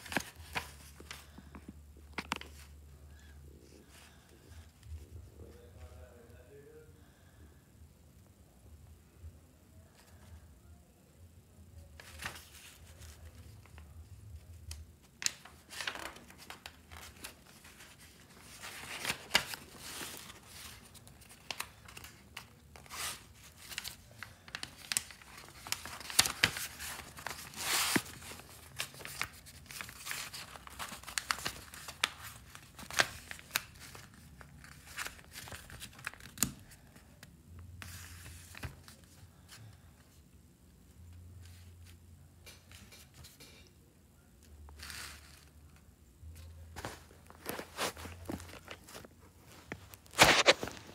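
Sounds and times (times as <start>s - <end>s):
paper pages rustling and crinkling: 0.0s - 2.8s, 12.0s - 37.2s, 37.8s - 40.1s, 44.7s - 45.8s, 46.4s - 50.9s.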